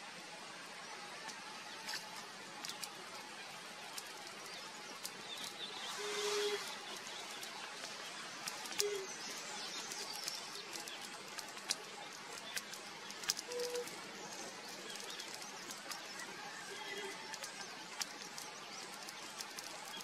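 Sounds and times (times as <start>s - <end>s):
forest hiss: 0.0s - 20.0s
low whistled bird notes: 5.4s - 7.5s, 13.3s - 14.0s
sharp clicks: 6.6s - 20.0s.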